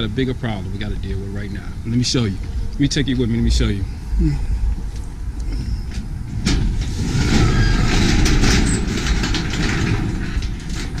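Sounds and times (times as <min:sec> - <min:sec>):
wind rumble on microphone: 0:00.0 - 0:11.0
garage door rattling open: 0:06.3 - 0:11.0.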